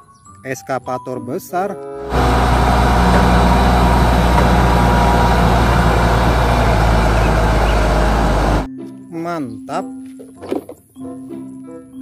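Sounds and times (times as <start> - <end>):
loud diesel engine droning: 2.0 - 8.7.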